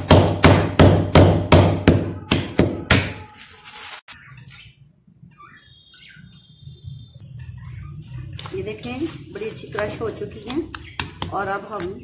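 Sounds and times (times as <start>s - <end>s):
plastic bag rustling: 3.2s - 4.2s.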